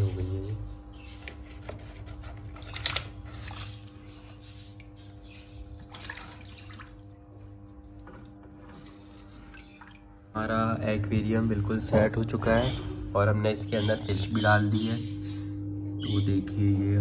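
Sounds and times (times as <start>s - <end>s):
filter pump hum: 0.0s - 17.0s
water splashing and trickling: 2.5s - 10.5s.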